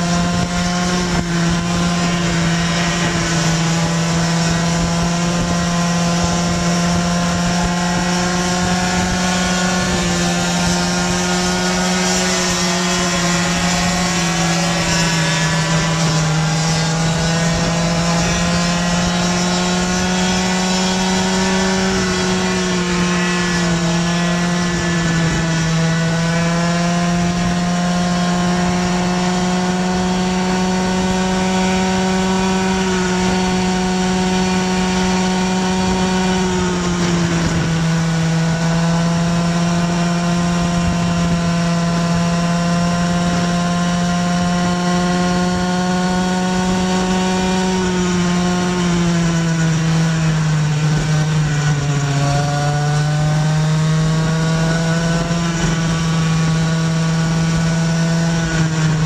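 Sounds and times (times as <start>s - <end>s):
two-stroke scooter engine revving: 0.0s - 59.0s.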